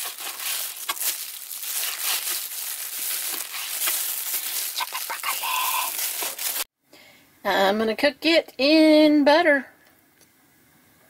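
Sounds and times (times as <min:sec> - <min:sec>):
plastic glove crinkling: 0:00.0 - 0:06.7.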